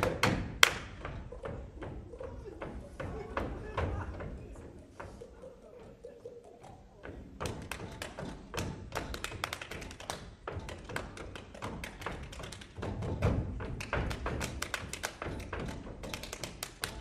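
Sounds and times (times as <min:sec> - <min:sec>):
hand claps and slaps: 0:00.0 - 0:01.1, 0:07.4 - 0:17.0.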